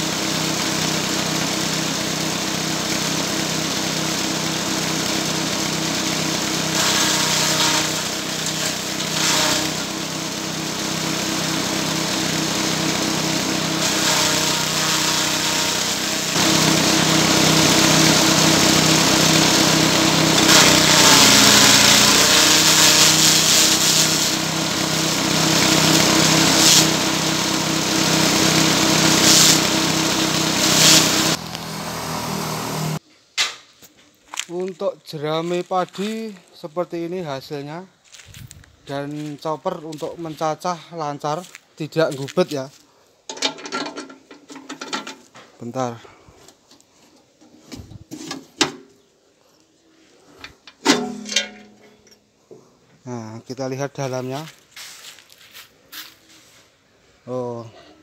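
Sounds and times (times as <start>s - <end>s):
small engine running: 0.0s - 33.0s
straw shredding in blades: 0.0s - 33.0s.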